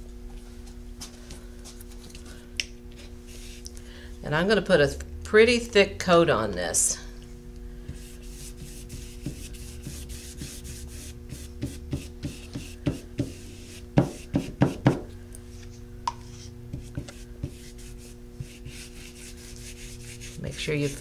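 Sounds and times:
paintbrush scrubbing on board: 7.9s - 14.9s, 16.8s - 21.0s.

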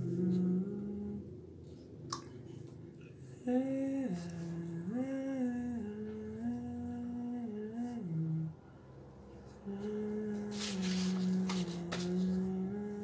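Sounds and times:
person humming a slow tune: 0.0s - 1.4s, 3.3s - 8.6s, 9.6s - 13.0s.

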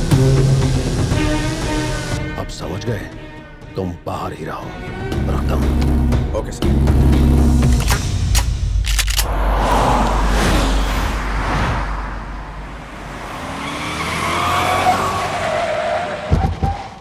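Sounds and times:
sharp metallic click: 7.6s - 9.3s
tyres squealing: 13.8s - 17.0s.

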